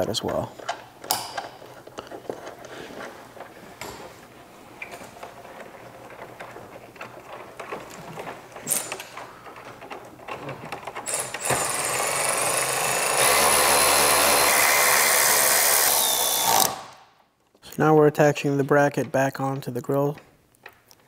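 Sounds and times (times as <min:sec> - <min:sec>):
plastic parts clicking and knocking: 0:04.8 - 0:11.6, 0:18.8 - 0:21.0
electric ratchet whining: 0:11.0 - 0:17.0.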